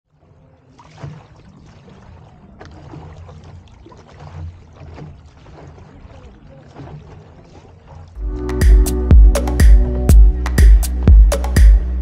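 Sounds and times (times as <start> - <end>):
water splashing and trickling: 0.0 - 12.0
paddles dipping in water: 0.1 - 12.0.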